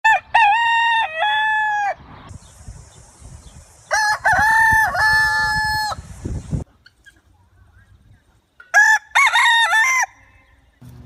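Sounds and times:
rooster crowing: 3.9s - 6.0s, 8.7s - 10.3s.

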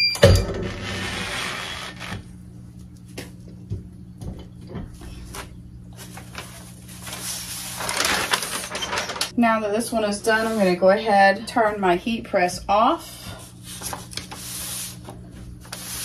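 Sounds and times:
paper rustling and crinkling: 5.2s - 9.3s.

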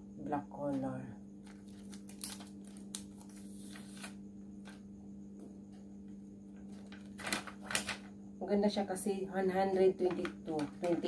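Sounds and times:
steady low hum: 0.0s - 11.0s
cardboard packaging rustling: 1.4s - 4.1s, 6.7s - 8.1s.

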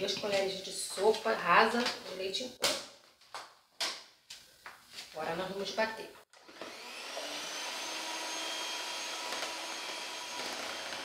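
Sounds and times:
electric mixer whipping cream: 6.4s - 11.0s.

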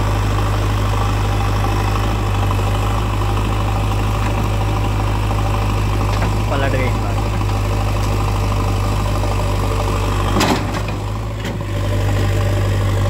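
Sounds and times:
diesel engine running: 0.0s - 13.0s
loud clatter of knocks: 10.3s - 11.7s.

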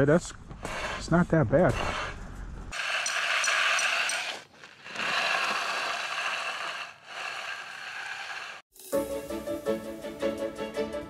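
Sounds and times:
tool scraping across concrete: 0.5s - 8.7s.

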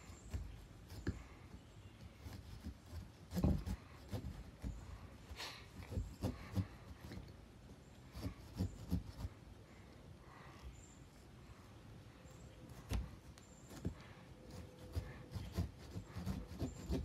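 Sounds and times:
knife sawing into pumpkin rind: 0.0s - 7.2s, 8.1s - 9.3s, 13.7s - 17.0s.

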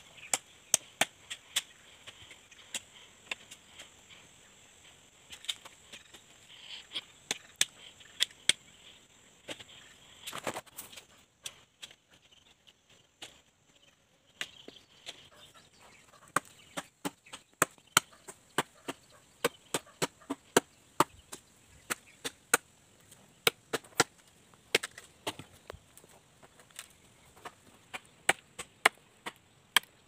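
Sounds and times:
machete chopping wood: 0.2s - 1.7s, 16.3s - 22.7s, 23.4s - 25.5s, 27.9s - 30.0s.

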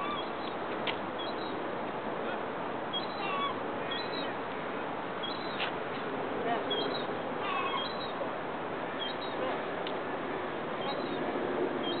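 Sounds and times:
birds honking chirps: 0.0s - 0.6s, 2.9s - 4.4s, 6.7s - 8.2s.

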